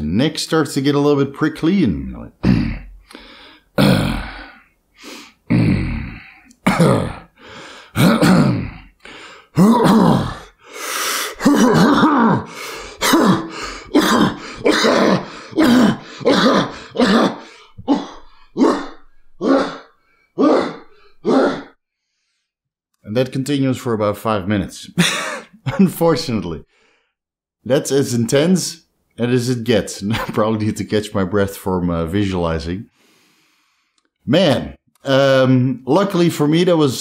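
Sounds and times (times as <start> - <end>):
man coughing: 2.4 - 3.0, 3.8 - 4.6, 5.5 - 8.9, 9.6 - 10.6, 11.3 - 21.7, 25.0 - 26.2.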